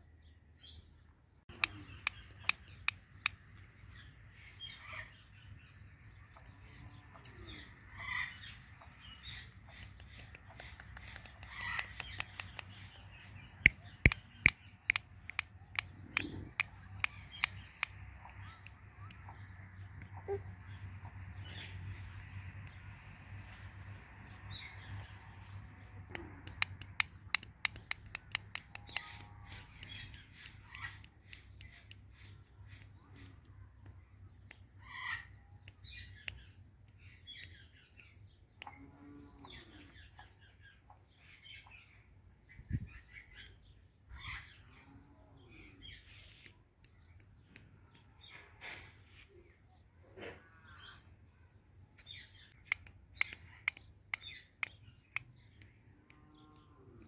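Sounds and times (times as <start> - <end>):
sharp clicks: 1.5 - 3.6, 9.8 - 13.0, 13.6 - 20.1, 26.0 - 34.7, 51.7 - 56.7
parrot squawking and chattering: 9.2 - 13.0, 13.6 - 19.4, 34.8 - 36.0.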